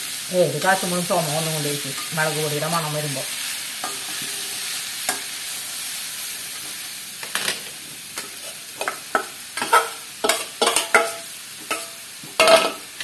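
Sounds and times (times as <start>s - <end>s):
soft frying sizzle: 0.0s - 13.0s
ladle scraping and clinking in pan: 9.6s - 12.8s.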